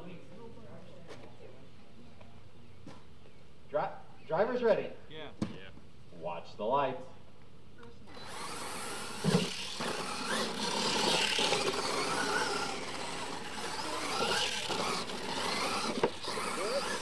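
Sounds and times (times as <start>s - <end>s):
sharp thump: 5.4s - 5.7s
electric motors whining: 7.9s - 17.0s
tyres churning through dirt: 8.1s - 17.0s.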